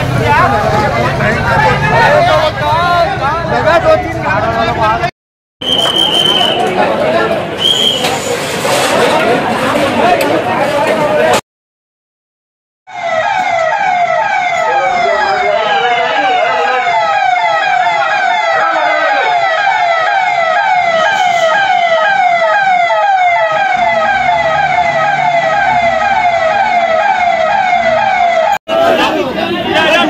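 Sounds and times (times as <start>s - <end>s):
emergency siren wailing: 12.9s - 28.6s.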